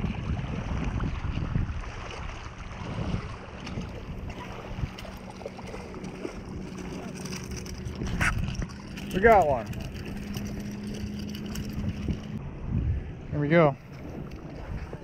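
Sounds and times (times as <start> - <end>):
small waves lapping: 0.0 - 12.4, 13.8 - 15.0
wind buffeting microphone: 0.0 - 15.0.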